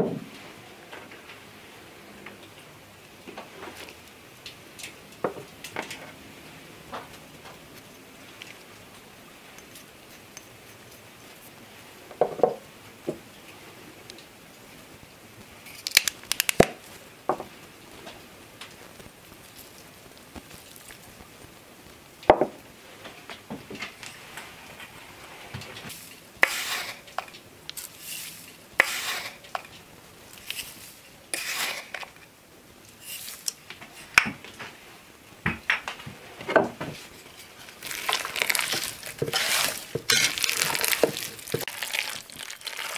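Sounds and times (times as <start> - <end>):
sugar sprinkling hiss: 7.7 - 11.9, 14.6 - 22.2, 24.0 - 34.1, 37.5 - 42.9
wooden spoon scraping pot: 24.2 - 29.7, 30.4 - 32.2, 37.4 - 42.9.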